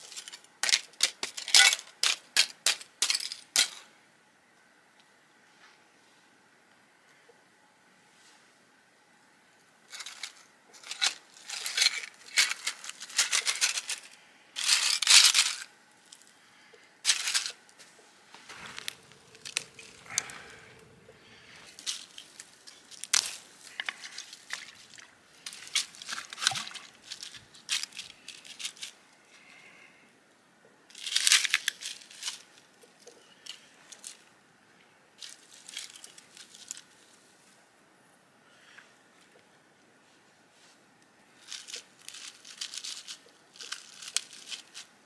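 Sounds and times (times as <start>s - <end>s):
ice crunching: 17.1s - 17.6s, 18.4s - 28.9s, 41.4s - 44.9s
scarf rustling and crumpling: 18.4s - 20.8s.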